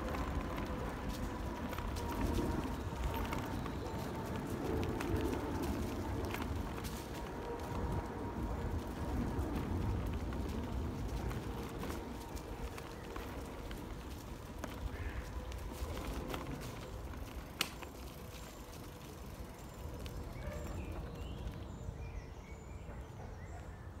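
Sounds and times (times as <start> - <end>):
wind rumble: 0.0 - 23.0
small birds chirping: 17.8 - 23.9.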